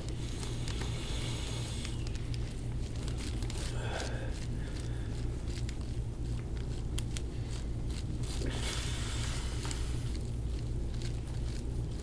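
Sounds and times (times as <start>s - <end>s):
steady low hum: 0.0s - 12.0s
wet clicks and squelches of skin: 1.6s - 8.9s.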